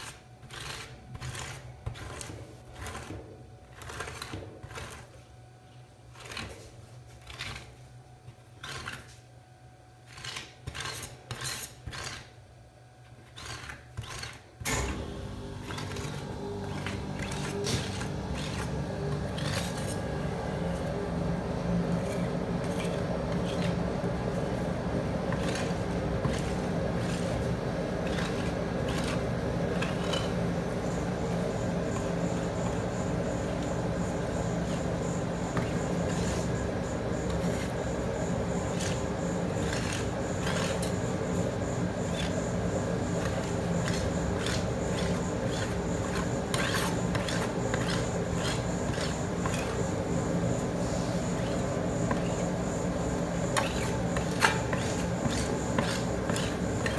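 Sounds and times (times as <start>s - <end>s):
metal spatulas scraping ice cream: 0.0s - 9.3s, 9.9s - 12.4s, 13.1s - 15.0s, 15.6s - 56.9s
machine humming: 14.6s - 56.9s.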